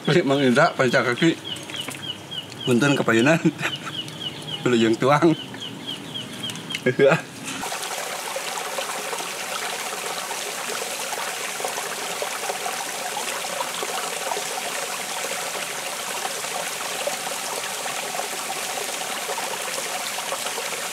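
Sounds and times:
stream babbling over stones: 7.6 - 20.9.

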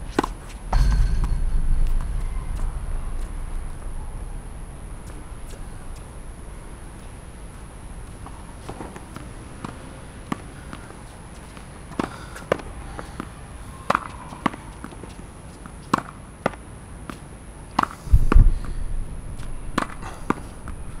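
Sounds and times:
loud low rumble: 0.7 - 8.7, 18.1 - 21.0
tennis ball hitting wall: 19.7 - 20.8.

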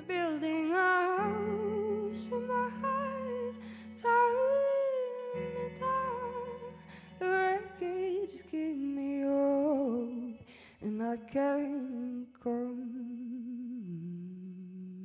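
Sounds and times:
woman singing with vibrato: 0.0 - 15.0
singer breathing: 3.6 - 4.0, 10.4 - 10.8.

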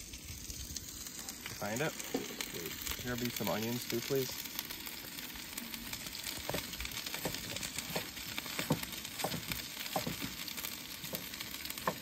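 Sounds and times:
food sizzling in a pan: 0.0 - 12.0
sharp pops: 6.4 - 12.0.

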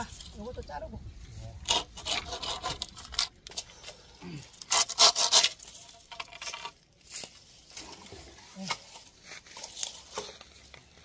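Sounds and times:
hand saw cutting bamboo: 1.6 - 3.2, 4.6 - 6.6.

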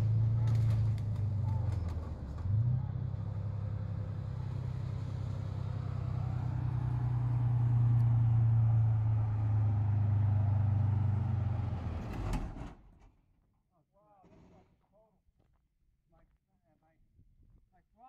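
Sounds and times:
tracked vehicle engine drone: 0.0 - 13.0.

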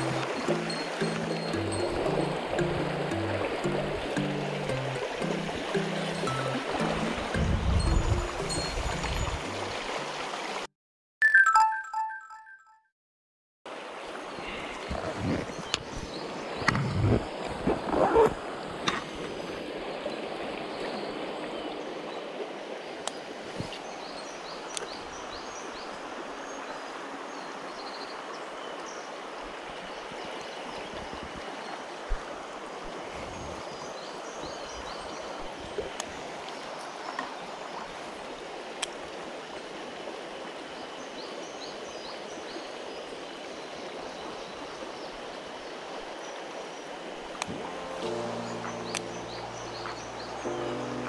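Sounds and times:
stream water rushing: 0.0 - 10.7, 13.7 - 51.0.

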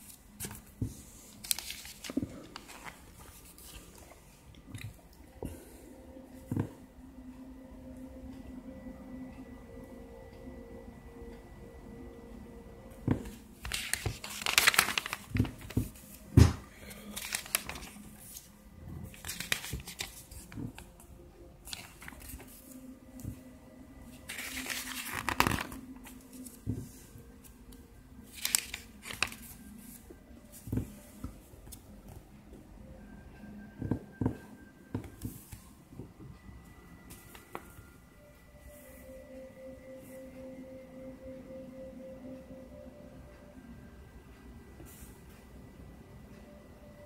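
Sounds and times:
paper pages turning: 0.0 - 5.0, 13.1 - 21.0, 21.6 - 23.4, 24.1 - 27.1, 28.2 - 31.8.

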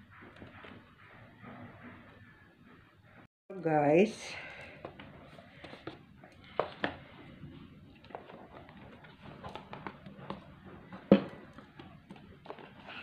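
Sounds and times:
packaging clicks and knocks: 7.9 - 13.0.

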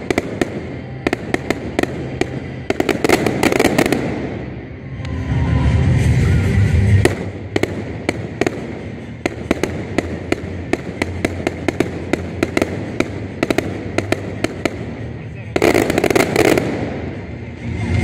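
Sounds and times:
deep loud fireworks rumble: 0.0 - 18.0
fireworks cracks and pops: 6.9 - 17.0.

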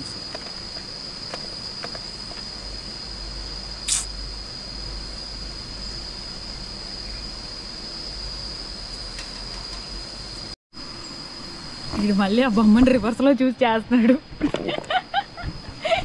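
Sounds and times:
insects droning: 0.0 - 16.0
sharp click: 3.9 - 4.1.

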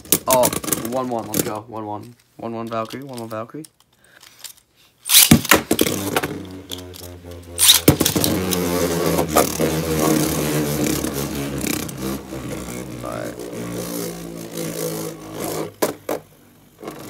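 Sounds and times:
spinning tops clashing: 5.0 - 10.3
spinning tops clacking: 5.1 - 12.0
spinning tops whirring: 5.1 - 17.0.

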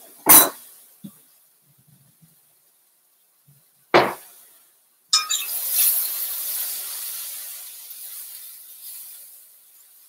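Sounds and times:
cauliflower rice sizzling in skillet: 5.4 - 10.0.

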